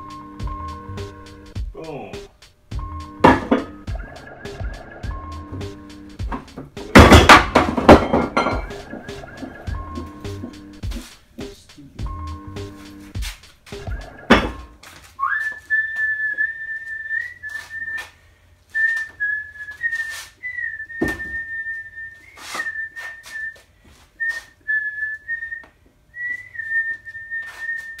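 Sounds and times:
loud thump: 0:06.3 - 0:08.6
high steady whistling tone: 0:15.2 - 0:28.0.

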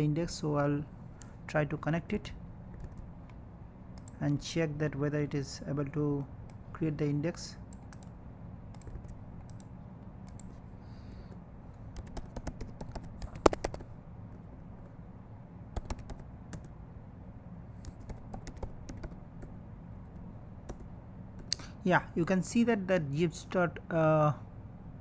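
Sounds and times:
low steady hum: 0:00.0 - 0:25.0
keyboard typing: 0:02.7 - 0:03.1, 0:08.7 - 0:10.6, 0:11.9 - 0:13.9, 0:15.8 - 0:16.7, 0:17.8 - 0:19.5.

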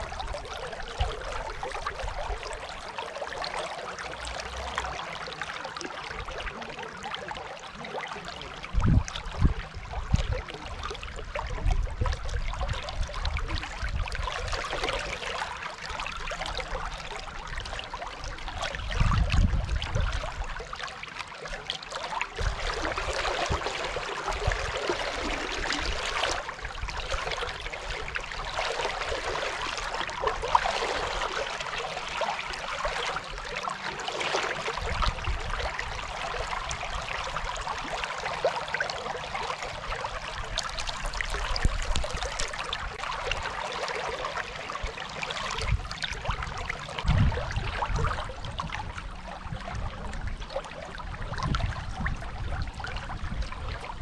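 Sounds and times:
river water rushing: 0:20.8 - 0:47.0.

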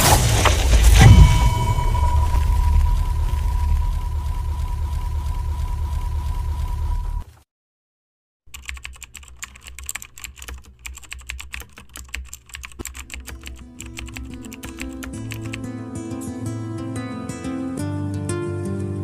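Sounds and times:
deep rumble: 0:00.0 - 0:07.2
steady high tone: 0:00.8 - 0:05.8
keyboard key clicks: 0:08.5 - 0:15.6.

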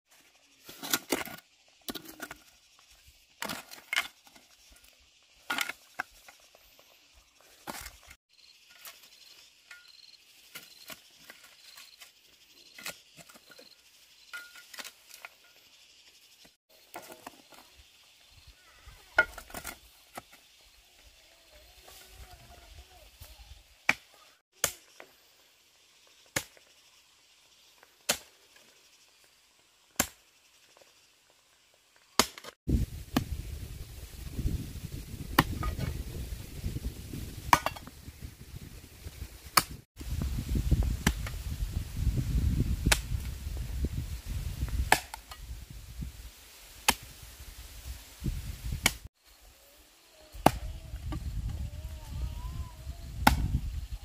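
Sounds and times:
sharp chopping strikes: 0:24.6 - 0:24.9, 0:44.9 - 0:45.3, 0:46.8 - 0:47.0, 0:48.8 - 0:49.0.

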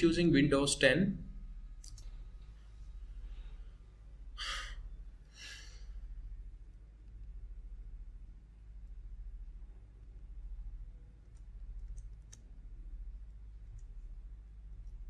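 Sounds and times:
steady low hum: 0:00.0 - 0:15.0
person breathing: 0:04.4 - 0:06.0.

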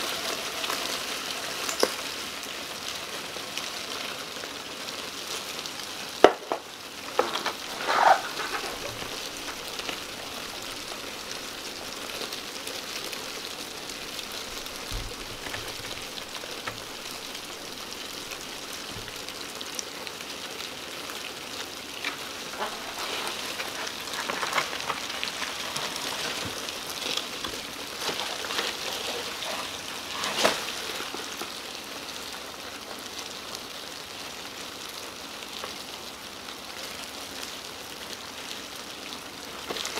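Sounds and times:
cockroaches crawling rustle: 0:00.0 - 0:39.9
loud scrapes: 0:07.2 - 0:10.6, 0:22.1 - 0:31.2.

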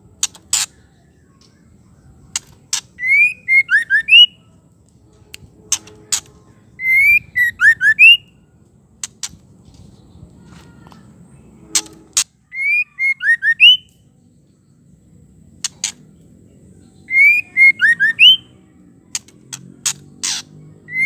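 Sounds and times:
bird whistling phrases: 0:03.0 - 0:04.4, 0:06.8 - 0:08.4, 0:12.5 - 0:13.9, 0:17.0 - 0:18.5.

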